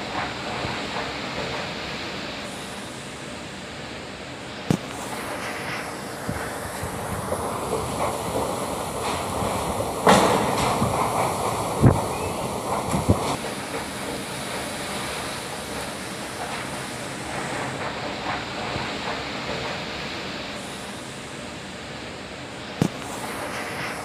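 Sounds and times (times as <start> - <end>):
strong wind buffeting microphone: 4.7 - 17.9.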